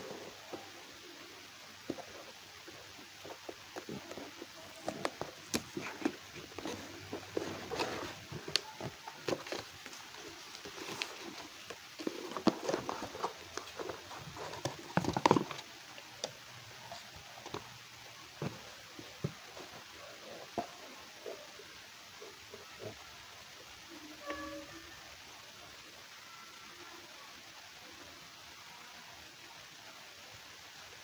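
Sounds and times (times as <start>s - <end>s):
cardboard and paper rustling: 0.0s - 21.4s.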